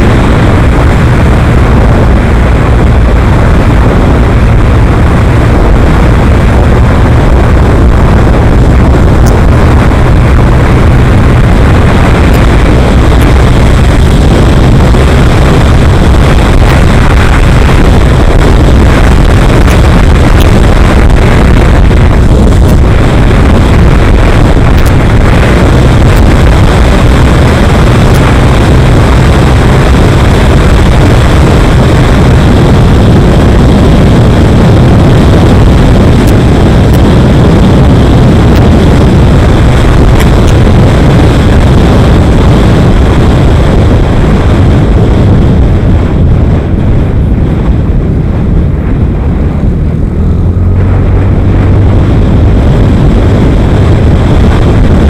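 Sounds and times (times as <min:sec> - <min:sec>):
tyres on road: 0:00.0 - 0:55.0
vehicle engine rumbling: 0:00.0 - 0:55.0
wind on microphone: 0:00.0 - 0:55.0.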